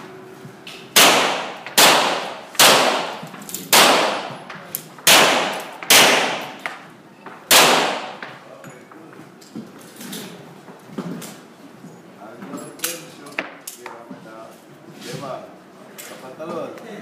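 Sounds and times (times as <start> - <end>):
pistol shots with echo: 1.0 - 4.4, 5.0 - 6.8, 7.5 - 8.3.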